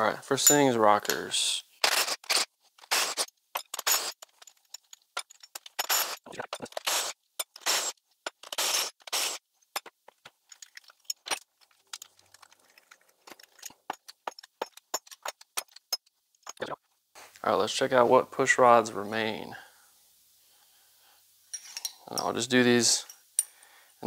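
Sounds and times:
cordless power tool spinning: 0:01.8 - 0:03.3, 0:06.0 - 0:09.4
light metallic clinks: 0:21.5 - 0:22.4, 0:23.0 - 0:23.7.

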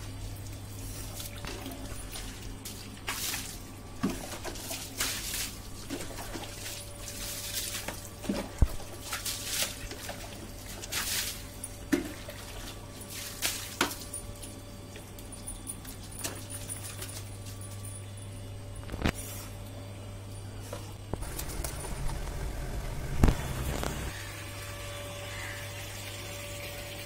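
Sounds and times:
low hum: 0:14.1 - 0:25.6.

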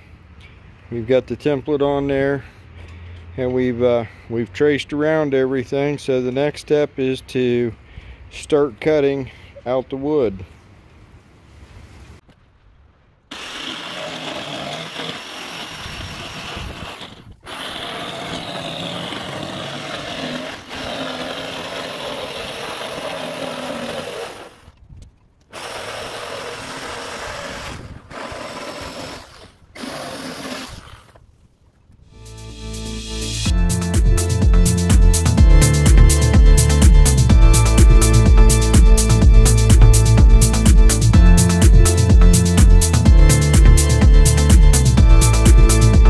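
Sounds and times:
electric jigsaw cutting wood: 0:13.3 - 0:24.7, 0:25.5 - 0:31.2, 0:34.4 - 0:46.0.

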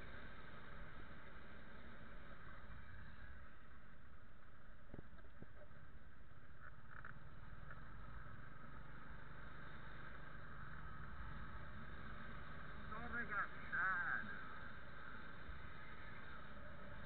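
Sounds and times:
street noise rumble: 0:05.8 - 0:17.0.

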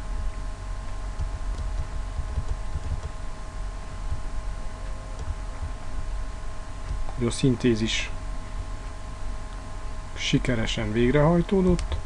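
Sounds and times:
low rumble: 0:00.0 - 0:07.2
soft low thumps: 0:00.0 - 0:07.2
two-tone electrical whine: 0:00.0 - 0:12.0.

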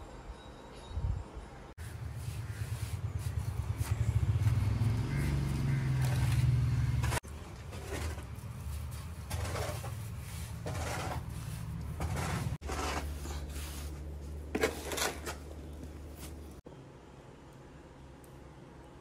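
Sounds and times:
trowel scraping wet mortar: 0:06.0 - 0:16.4.

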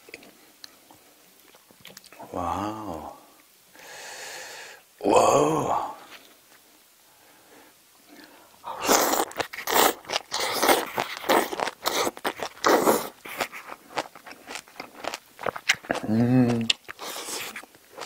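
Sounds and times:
person chewing and crunching food: 0:00.0 - 0:03.0, 0:08.2 - 0:18.0.

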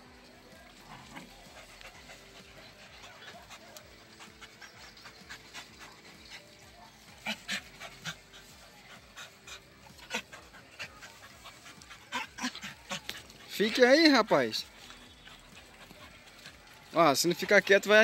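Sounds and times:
dog panting: 0:00.0 - 0:18.0
paws scratching in sand: 0:00.0 - 0:18.0.

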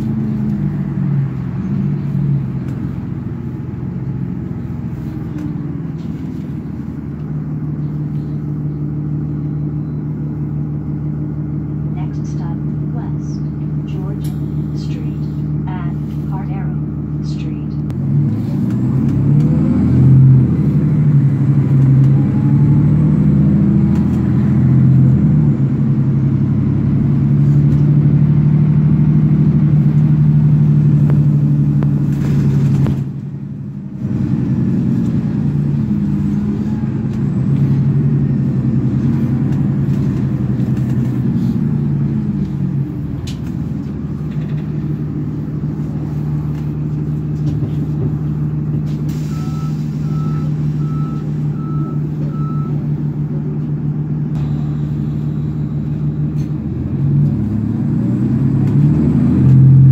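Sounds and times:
bus diesel engine droning: 0:00.0 - 0:59.9.

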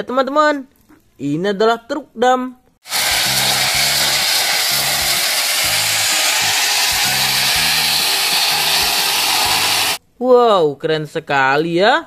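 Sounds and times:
gravel pouring from truck bed: 0:02.9 - 0:10.0.

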